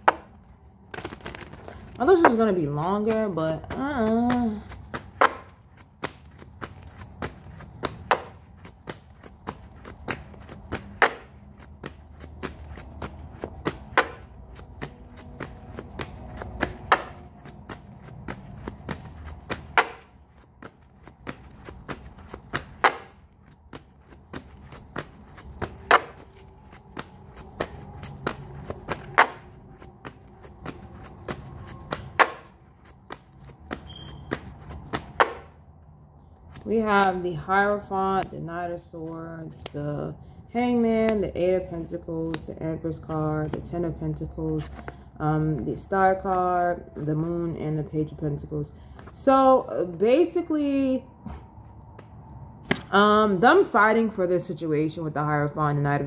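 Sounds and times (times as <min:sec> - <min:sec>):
cards being shuffled: 0:00.0 - 0:35.5.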